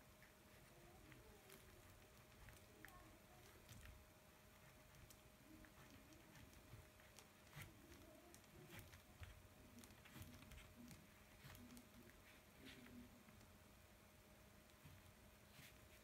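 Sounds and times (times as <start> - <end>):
pastel stick scratching paper: 4.5 - 13.1.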